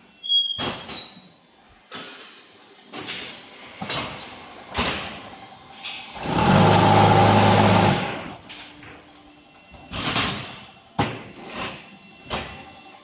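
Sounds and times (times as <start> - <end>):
vibrators humming rattle: 1.5 - 13.0.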